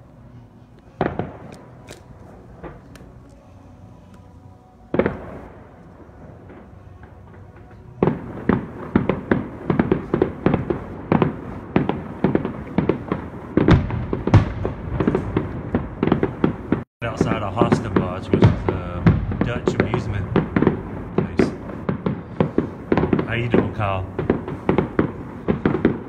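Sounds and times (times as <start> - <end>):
fireworks bursting: 0.8 - 26.0.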